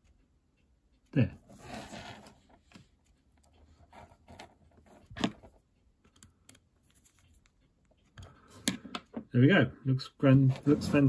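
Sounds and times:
wires rustling: 1.2s - 8.8s.

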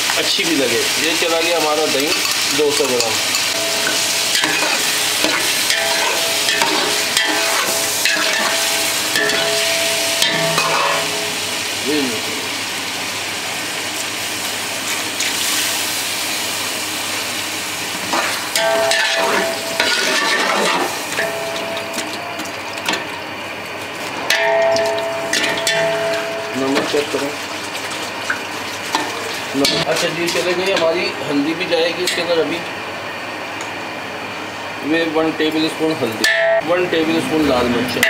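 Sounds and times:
chicken sizzling in oil: 0.0s - 32.7s
metal spatula scraping pot: 3.4s - 11.1s.

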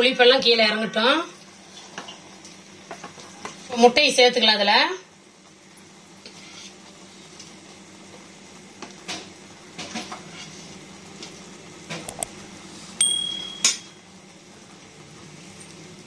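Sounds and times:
high electronic ding: 13.0s - 14.0s.

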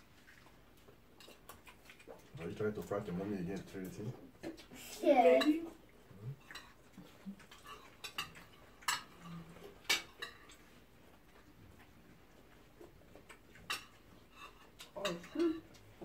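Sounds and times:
cutlery clinking on plates: 7.5s - 10.6s, 13.6s - 15.7s.

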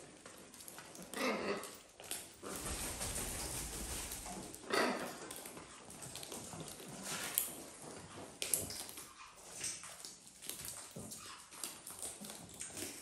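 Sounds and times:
clicks and scuffles on wooden floor: 5.3s - 13.0s.

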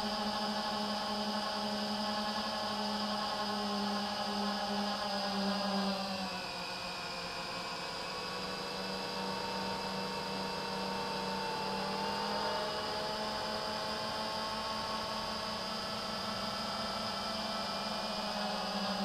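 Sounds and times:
drone motors whining: 0.1s - 19.0s.

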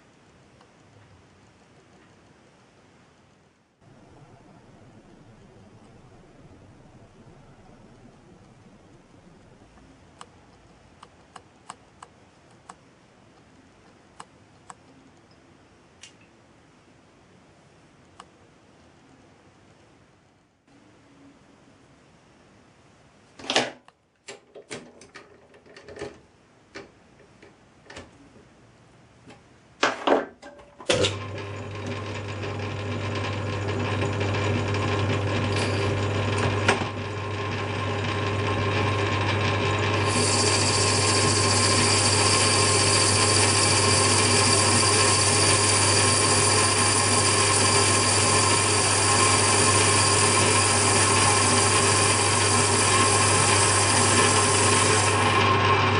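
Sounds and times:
lathe motor humming: 31.1s - 55.9s.

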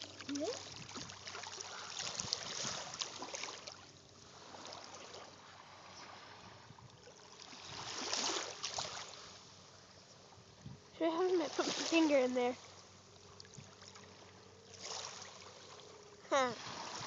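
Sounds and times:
water washing on sandy shore: 11.1s - 12.6s.

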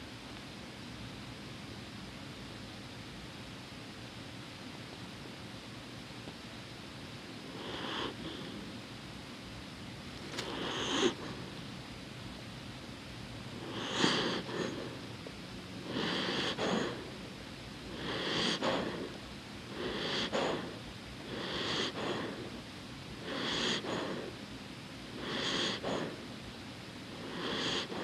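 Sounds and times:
dog breathing slowly: 7.4s - 8.8s, 10.3s - 11.7s, 13.5s - 24.5s, 25.1s - 26.4s, 27.1s - 28.0s.

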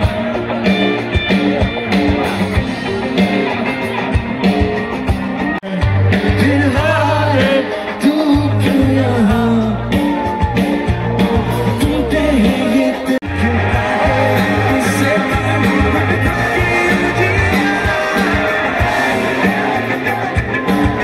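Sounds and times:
rock band playing live: 0.0s - 21.0s
man singing: 5.6s - 21.0s.

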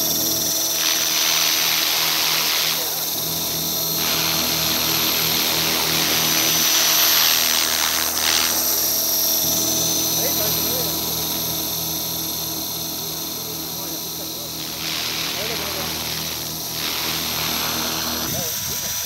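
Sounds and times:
model helicopter motor whine: 0.0s - 19.0s
rotor blades hissing: 0.0s - 19.0s.

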